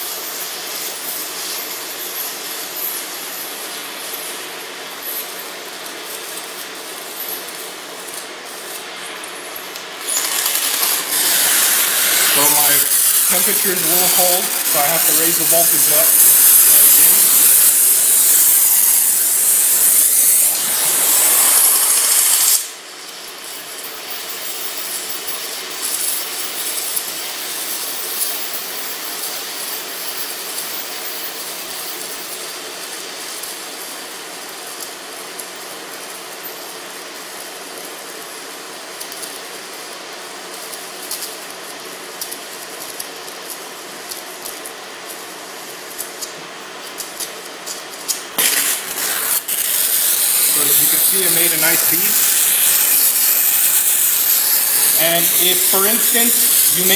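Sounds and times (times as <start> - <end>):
welding arc crackling: 0.0 - 56.9
welding torch hissing: 0.0 - 56.9.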